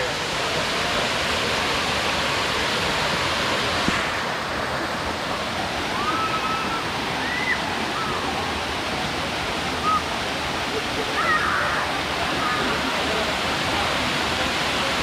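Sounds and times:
small waterfall rushing: 0:00.0 - 0:15.0
faint short high calls: 0:09.8 - 0:10.1.

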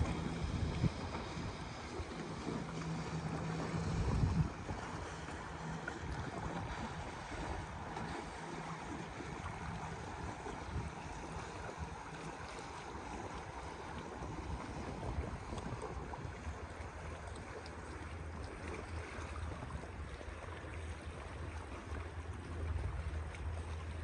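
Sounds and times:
wind on microphone: 0:00.0 - 0:16.8
distant motorboat engine drone: 0:00.0 - 0:24.0
sea wash: 0:00.0 - 0:24.0.

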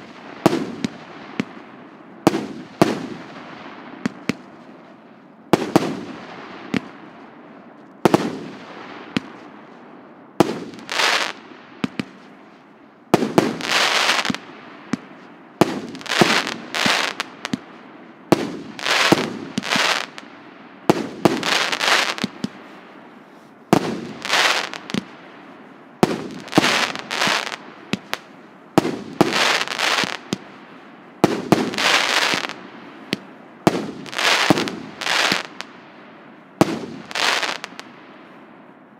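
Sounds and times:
fireworks bangs: 0:00.0 - 0:01.6, 0:13.1 - 0:20.3, 0:20.9 - 0:25.3, 0:26.0 - 0:35.8, 0:36.6 - 0:37.9.

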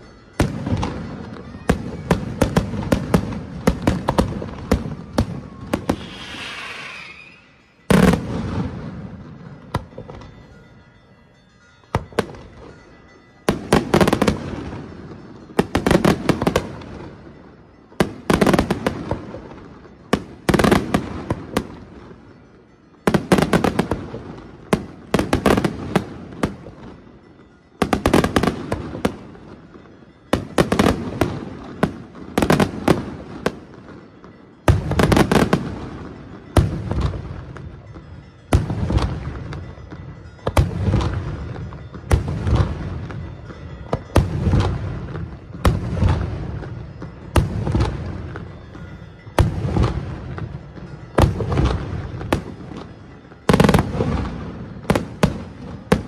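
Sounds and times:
fireworks shells bursting: 0:00.1 - 0:10.6.

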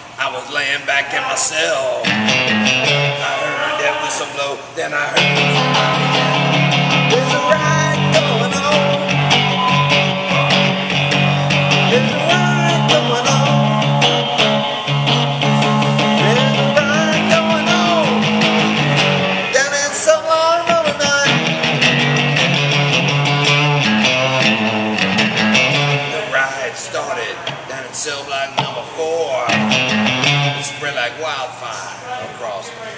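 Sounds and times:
electric guitar blues riff: 0:00.0 - 0:31.8.

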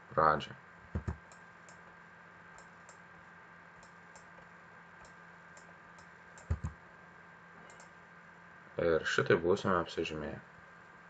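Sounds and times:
computer mouse clicks: 0:00.9 - 0:01.8, 0:03.8 - 0:06.8, 0:07.7 - 0:08.0.

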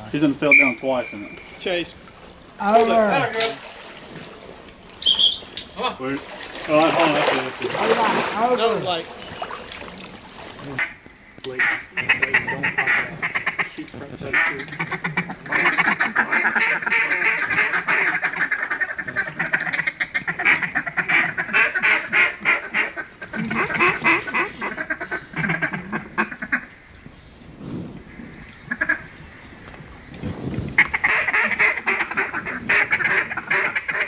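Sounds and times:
ducks quacking: 0:10.6 - 0:26.9, 0:28.1 - 0:29.5, 0:30.7 - 0:34.0.

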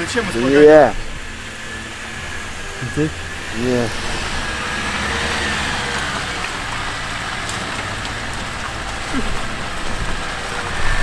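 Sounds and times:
vehicle engine running at low revs: 0:00.0 - 0:11.0.

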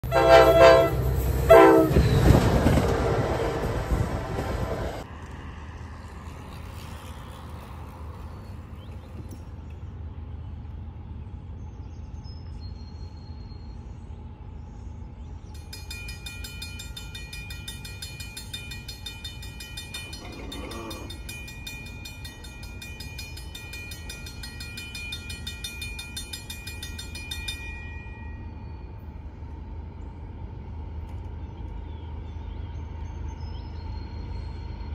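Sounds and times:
crossing warning bell ringing: 0:00.0 - 0:03.6, 0:15.5 - 0:29.5.

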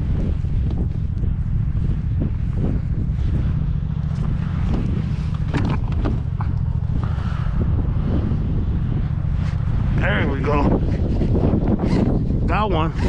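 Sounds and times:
wind buffeting microphone: 0:00.0 - 0:13.0
clicks and knocks of gear: 0:04.1 - 0:06.7.

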